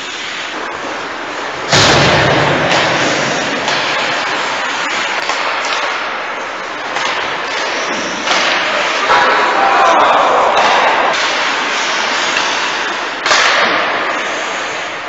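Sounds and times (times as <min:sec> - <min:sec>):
skate blades hissing on ice: 0:00.0 - 0:01.5, 0:07.5 - 0:09.1, 0:11.0 - 0:15.0.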